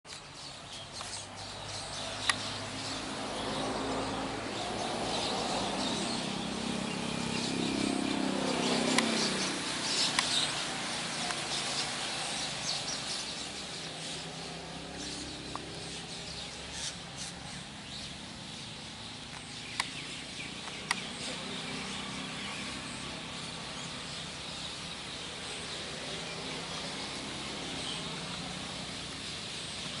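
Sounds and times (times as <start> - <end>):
flock of small birds chirping: 0.1 - 30.0
sharp clicks: 8.9 - 10.6, 19.3 - 21.2.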